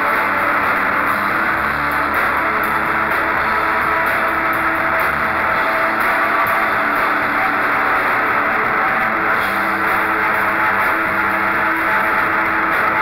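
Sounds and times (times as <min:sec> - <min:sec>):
drums with cymbals: 0:00.0 - 0:13.0
electric bass: 0:00.0 - 0:13.0
electric guitar: 0:00.0 - 0:13.0.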